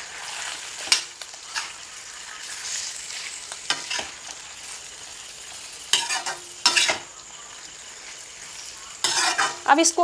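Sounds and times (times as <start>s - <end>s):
metal ladle scraping a pan: 0.0s - 4.8s, 5.8s - 7.1s, 8.0s - 9.7s
chicken sizzling in hot oil: 0.0s - 10.0s.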